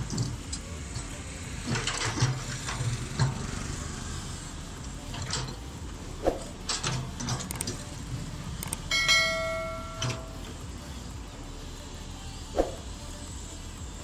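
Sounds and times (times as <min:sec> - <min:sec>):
excavator engine running: 0:00.0 - 0:14.0
bell chime: 0:08.9 - 0:10.4
metal clanks: 0:08.9 - 0:10.4.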